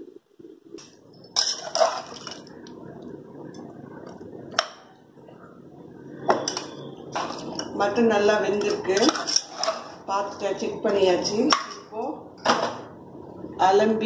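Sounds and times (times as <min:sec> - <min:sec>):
spoon stirring wet food: 0:01.0 - 0:05.2, 0:06.1 - 0:10.5.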